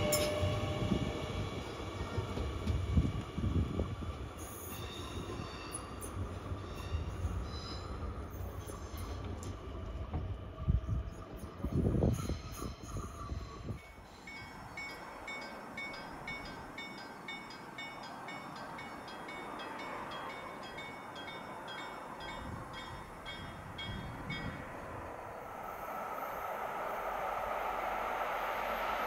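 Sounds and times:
passing train rumble: 0.0 - 29.0
level crossing warning bell: 13.8 - 24.7
rising rushing noise: 24.2 - 29.0.

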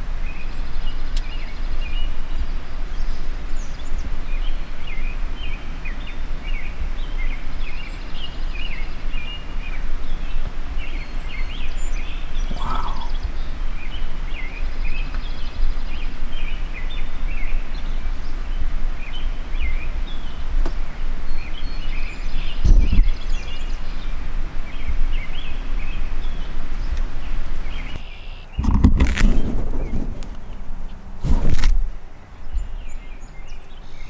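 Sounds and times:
small birds chirping: 0.0 - 31.3, 31.9 - 34.0
steady low rumble: 11.8 - 15.7.

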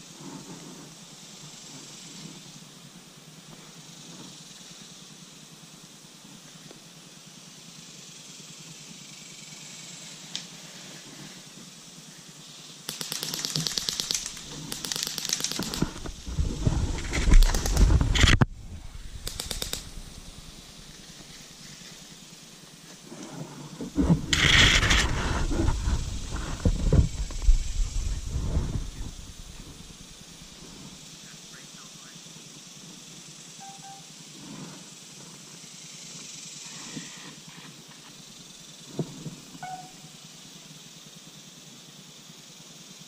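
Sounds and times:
airsoft guns firing bursts: 12.9 - 16.0, 17.3 - 18.0, 19.2 - 20.3
heavy low rumble: 15.7 - 21.7, 23.8 - 31.0.

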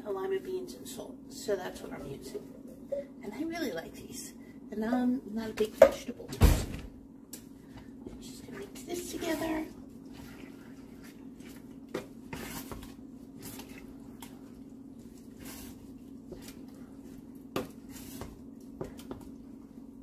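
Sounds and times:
wet squishing of stirred vegetables: 8.1 - 19.9.

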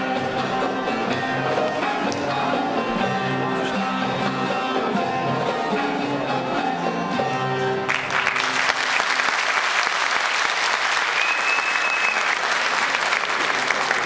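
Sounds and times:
audience applauding: 7.8 - 14.0.

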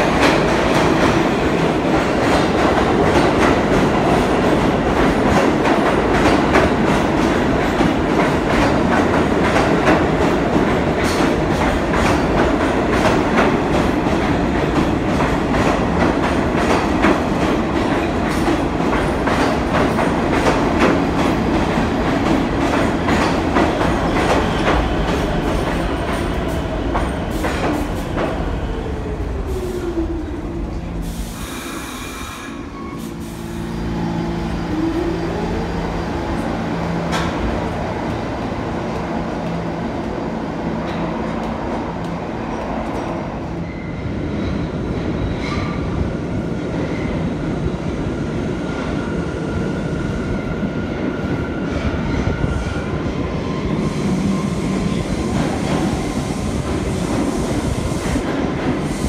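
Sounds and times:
subway train wheel clatter: 0.0 - 59.0
air hiss: 31.0 - 33.7.

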